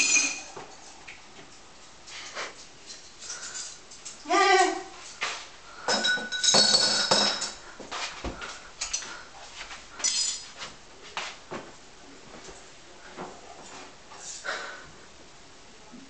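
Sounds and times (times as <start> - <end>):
dishes clinking in sink: 0.0 - 0.7, 5.8 - 7.6.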